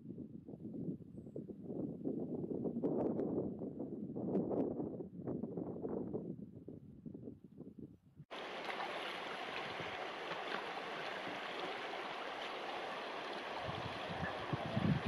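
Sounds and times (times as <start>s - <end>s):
faint wind: 0.0s - 15.0s
river babbling over rocks: 8.3s - 15.0s.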